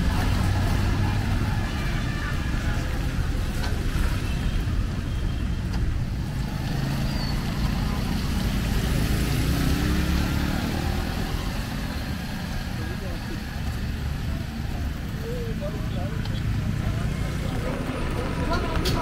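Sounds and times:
city street traffic rumble: 0.0s - 19.0s
car engine accelerating: 6.0s - 19.0s.

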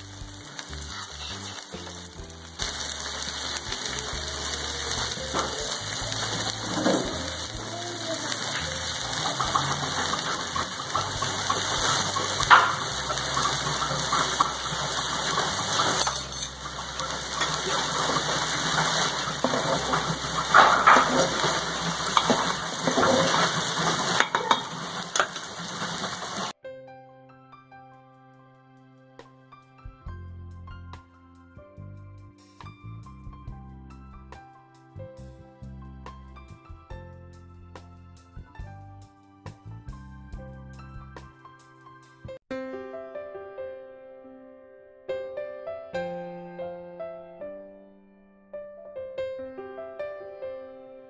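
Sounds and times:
soft background music: 0.0s - 23.2s, 26.8s - 42.4s
vegetables sizzling in a frying pan: 0.0s - 26.6s.

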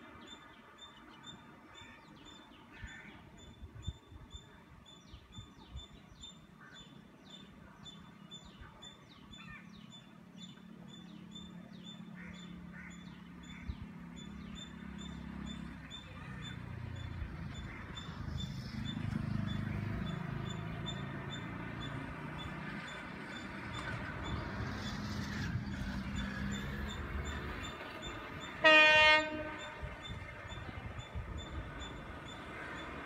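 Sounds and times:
birds chirping: 0.0s - 33.0s
train humming: 22.7s - 33.0s.

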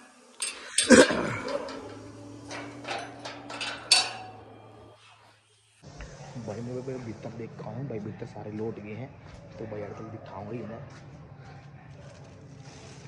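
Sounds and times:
low steady hum: 0.2s - 5.0s
metal gate clanking and rattling: 0.4s - 5.0s.

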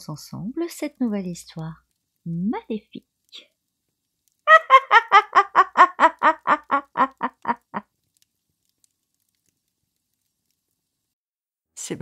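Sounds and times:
person cackling laugh: 4.5s - 7.8s.

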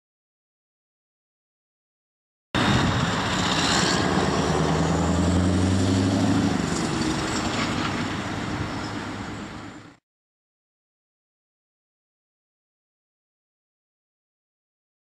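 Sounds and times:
heavy diesel truck driving past: 2.6s - 10.0s
road and tyre noise: 2.6s - 10.0s.

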